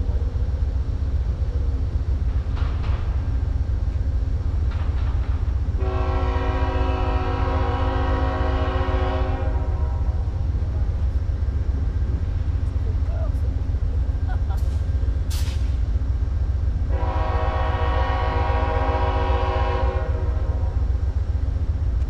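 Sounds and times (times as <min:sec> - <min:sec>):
locomotive air horn: 0:05.8 - 0:10.2, 0:16.9 - 0:20.8.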